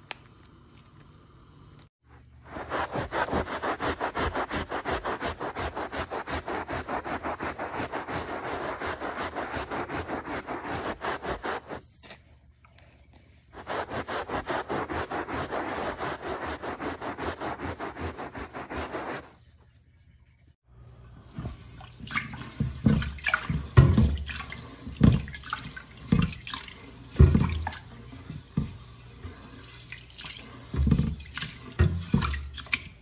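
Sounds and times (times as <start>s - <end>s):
scouring pad scrubbing carpet: 2.4s - 11.9s, 13.5s - 19.4s, 21.3s - 33.0s.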